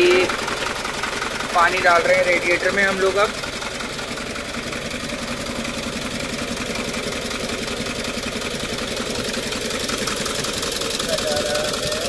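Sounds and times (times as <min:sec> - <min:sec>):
man talking: 0:00.0 - 0:00.4, 0:01.5 - 0:03.4, 0:11.0 - 0:12.0
truck diesel engine idling: 0:00.0 - 0:12.0.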